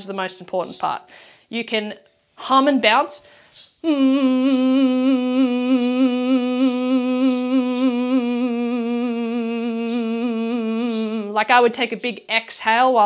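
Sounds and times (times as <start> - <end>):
woman humming a long note: 3.8 - 11.4.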